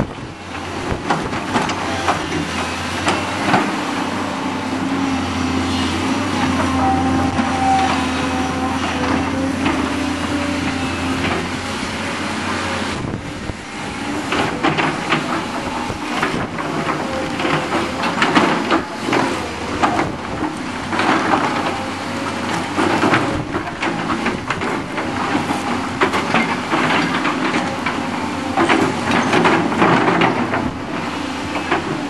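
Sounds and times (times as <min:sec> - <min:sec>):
wind buffeting microphone: 0:00.0 - 0:01.6, 0:09.2 - 0:26.8
excavator diesel engines droning: 0:00.0 - 0:32.0.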